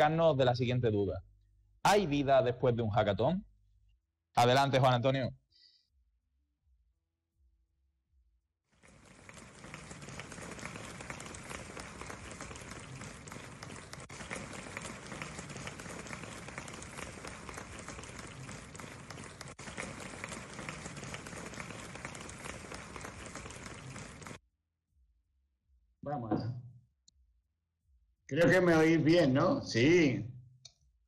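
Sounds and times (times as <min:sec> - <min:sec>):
audience applause: 0:08.7 - 0:24.4.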